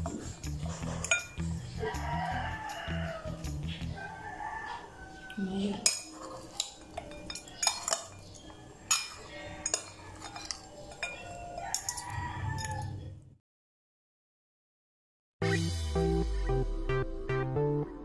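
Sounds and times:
metal utensils clinking on plate: 0.0s - 3.2s, 5.3s - 13.1s.

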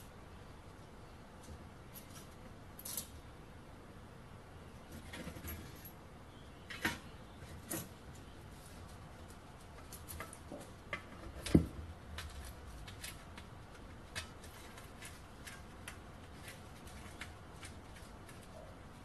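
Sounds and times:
small metal parts clicking: 1.9s - 3.2s.

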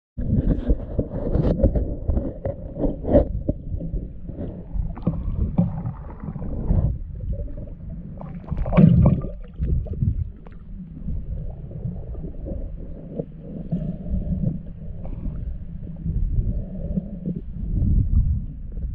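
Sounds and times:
churning water underwater: 0.2s - 18.9s
water surge: 4.7s - 15.5s.

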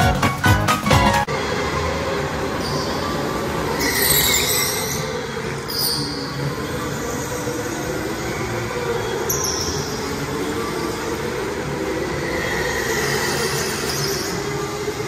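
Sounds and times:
electric go-karts running: 1.2s - 15.0s.

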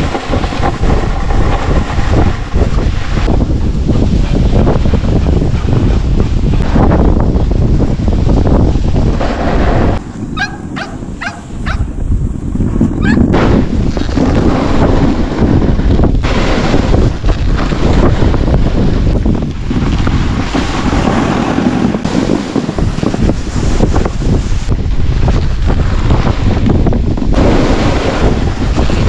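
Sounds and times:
wind rumble on microphone: 0.0s - 29.0s
dog yipping: 10.4s - 12.0s, 13.0s - 13.3s.

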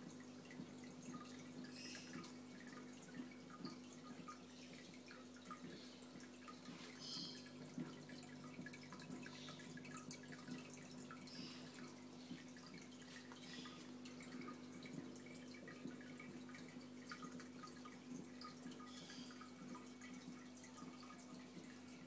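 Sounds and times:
aquarium water dripping: 0.0s - 22.0s.

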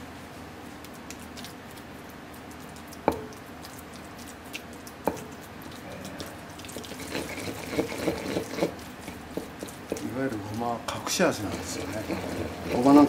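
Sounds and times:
pestle knocking on bowl: 3.0s - 3.3s, 7.1s - 10.2s
pestle scraping in mortar: 5.0s - 13.0s.

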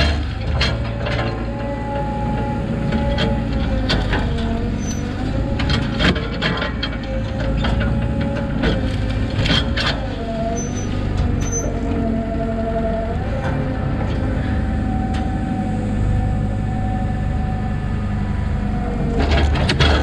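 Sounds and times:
diesel engine under load: 0.0s - 20.0s.

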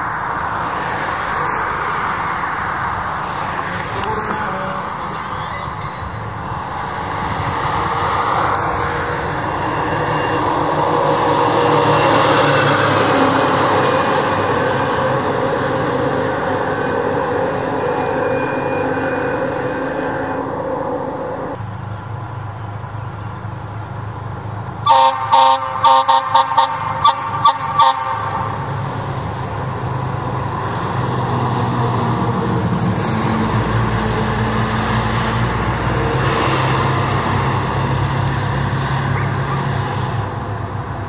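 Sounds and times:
truck engine running: 0.0s - 41.0s
fire truck air horn blasts: 24.8s - 28.8s.

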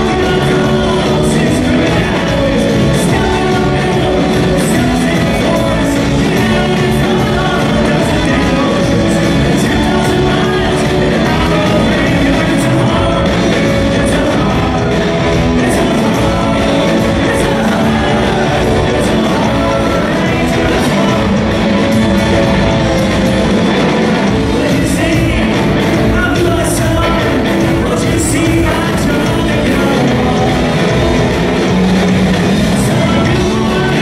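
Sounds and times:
live rock band playing: 0.0s - 34.0s
man singing: 0.0s - 34.0s.

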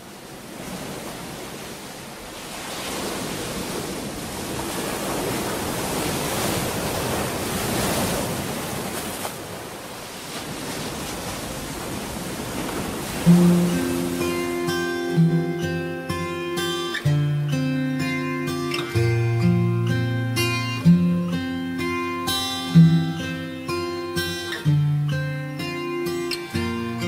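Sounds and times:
rushing surf-like noise: 0.0s - 27.0s
plucked acoustic guitar note: 13.2s - 27.0s.

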